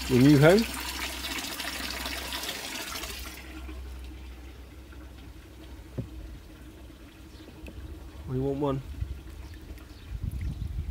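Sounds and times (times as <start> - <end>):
water stream splashing into tank: 0.0 - 8.0.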